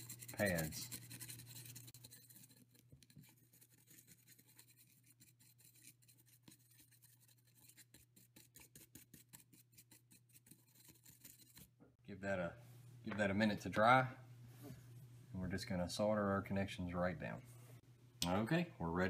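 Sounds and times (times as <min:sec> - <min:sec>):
small brush scratching: 0:00.0 - 0:11.7
low steady hum: 0:09.5 - 0:19.0.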